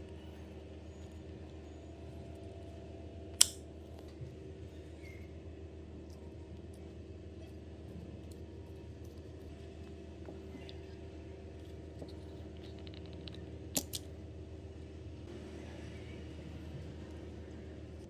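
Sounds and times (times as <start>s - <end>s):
steady low hum: 0.0s - 18.0s
sharp metal clicks: 3.4s - 3.6s.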